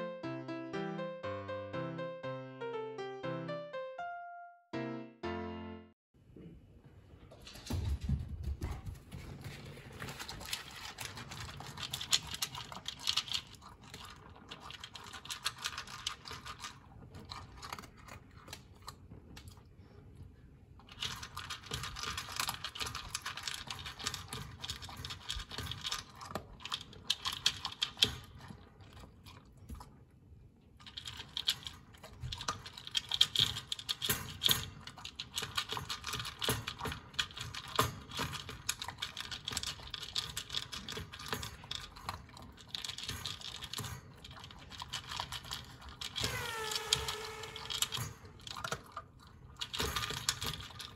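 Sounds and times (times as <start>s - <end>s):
dog crunching dry kibble: 9.2s - 19.7s, 20.8s - 30.0s, 30.8s - 50.9s.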